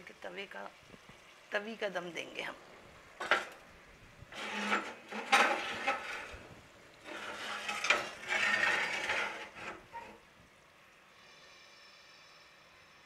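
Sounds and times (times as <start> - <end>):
metal cookware scraping on grate: 3.2 - 3.6, 4.3 - 10.2.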